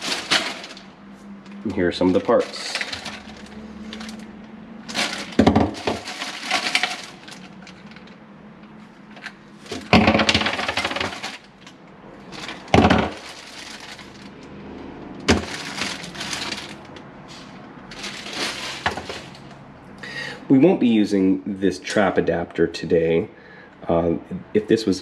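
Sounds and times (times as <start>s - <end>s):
plastic bag crinkling: 0.0s - 0.9s, 1.5s - 8.2s, 9.6s - 11.7s, 12.3s - 14.4s, 15.3s - 19.6s
plastic parts knocking: 4.9s - 8.1s, 9.2s - 11.5s, 12.4s - 14.0s, 15.3s - 16.8s.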